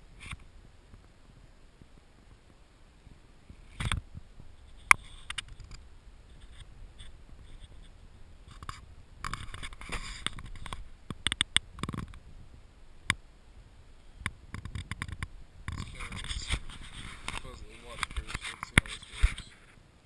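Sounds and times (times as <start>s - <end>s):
clicks and knocks on camera housing: 3.7s - 4.0s, 8.5s - 12.2s, 14.2s - 17.4s
scraping on camera housing underwater: 4.6s - 10.8s, 14.6s - 19.8s.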